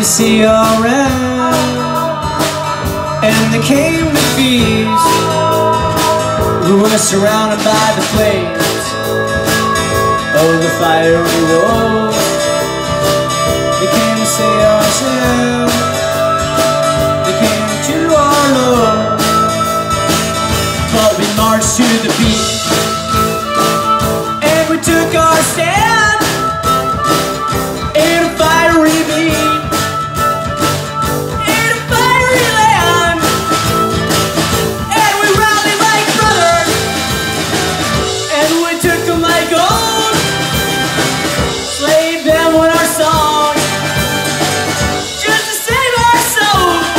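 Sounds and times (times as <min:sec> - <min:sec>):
bass guitar: 0:00.0 - 0:46.9
drums: 0:00.0 - 0:46.9
harmonica lead bent notes: 0:00.0 - 0:46.9
strummed acoustic guitar: 0:00.0 - 0:46.9.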